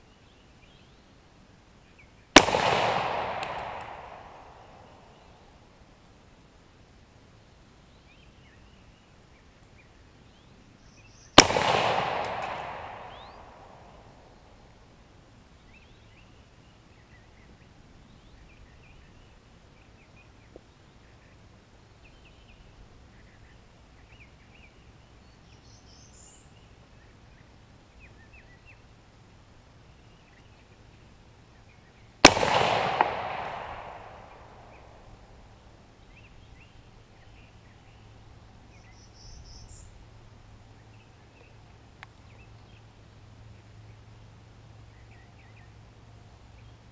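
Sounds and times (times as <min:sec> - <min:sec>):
rifle shots with echo: 0:02.4 - 0:05.3, 0:11.4 - 0:14.2, 0:32.2 - 0:35.4.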